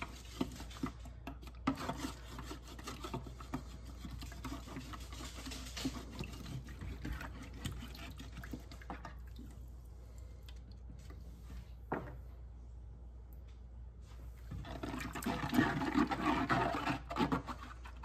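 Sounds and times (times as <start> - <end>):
brush scrubbing plastic bottle: 0.0 - 9.1, 14.5 - 18.0.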